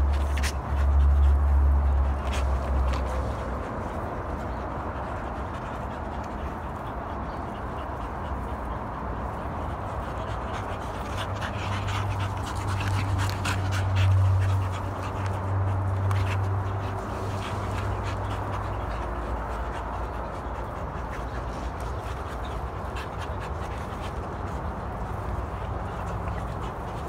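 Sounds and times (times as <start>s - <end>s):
puppies growling and panting: 0.0s - 27.0s.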